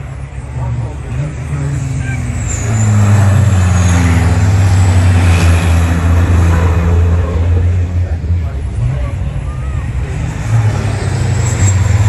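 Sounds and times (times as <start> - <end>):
diesel truck engines racing past: 0.0 - 12.0.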